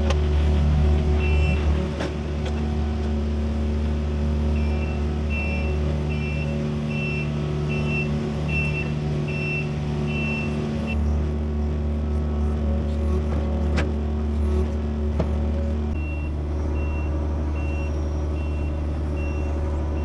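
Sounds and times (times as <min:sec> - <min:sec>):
excavator diesel engine running: 0:00.0 - 0:20.0
travel alarm beeping: 0:04.5 - 0:11.0, 0:16.0 - 0:20.0.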